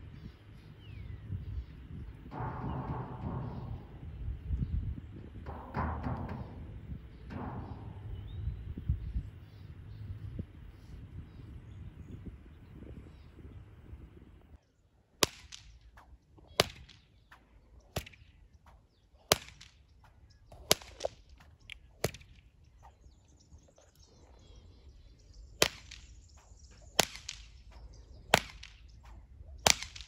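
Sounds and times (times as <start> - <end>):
training stick slaps: 2.2 - 10.4, 25.6 - 30.0.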